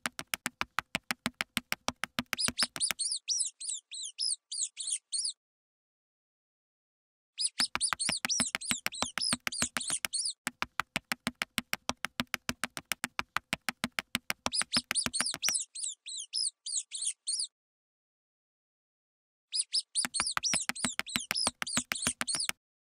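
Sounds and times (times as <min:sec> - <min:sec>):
fast patter of clicks: 0:00.0 - 0:03.0, 0:07.6 - 0:15.6, 0:20.0 - 0:22.6
cartoon mouse squeaks: 0:02.3 - 0:05.4, 0:07.4 - 0:10.4, 0:14.4 - 0:17.5, 0:19.5 - 0:22.6.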